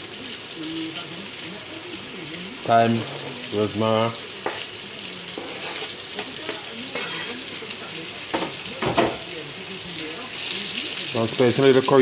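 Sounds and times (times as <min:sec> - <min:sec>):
vegetables sizzling in a pot: 0:00.0 - 0:12.0.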